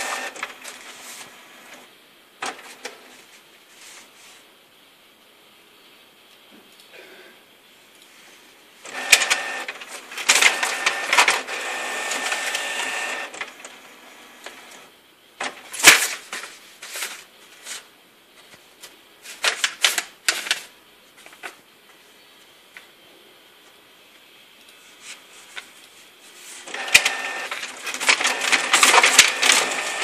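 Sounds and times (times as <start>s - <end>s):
printer whirring and clicking: 0.0s - 3.1s, 8.8s - 16.1s, 26.6s - 30.0s
paper crackling and rustling: 0.0s - 4.4s, 8.9s - 14.8s, 15.4s - 22.0s, 24.8s - 30.0s.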